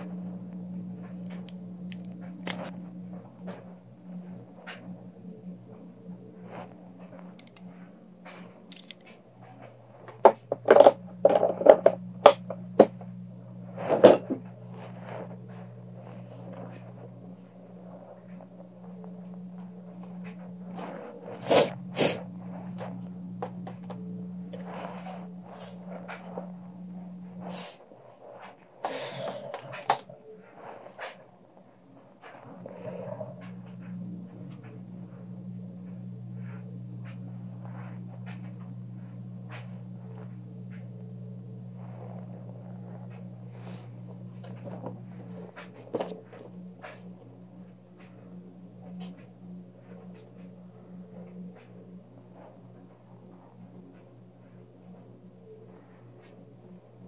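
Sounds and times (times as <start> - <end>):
steady low hum: 0.0 - 57.0
plastic tubing clicking and crackling: 1.2 - 2.8, 7.3 - 7.7, 8.7 - 9.2
plastic tubing rustling and scraping: 41.6 - 50.6.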